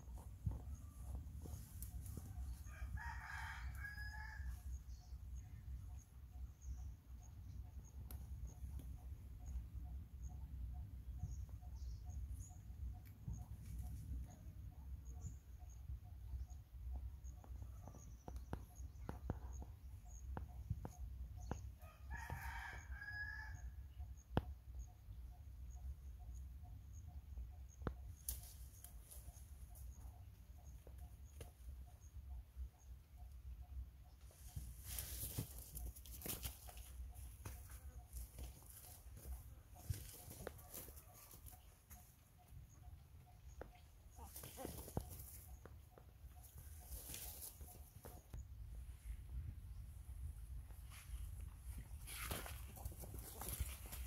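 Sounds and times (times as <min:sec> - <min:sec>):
rooster crowing: 0:02.6 - 0:04.5.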